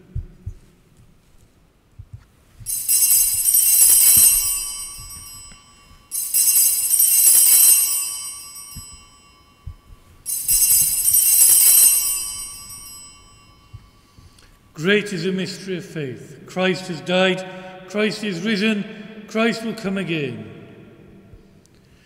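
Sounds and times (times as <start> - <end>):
altar bells ringing: 2.6 - 14.8.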